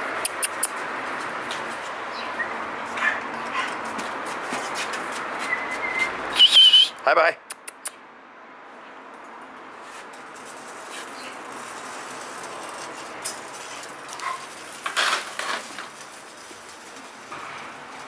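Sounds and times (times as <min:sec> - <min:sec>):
outdoor background hiss: 0:00.0 - 0:18.0
puppies scuffling and rustling: 0:00.7 - 0:06.1, 0:09.2 - 0:18.0.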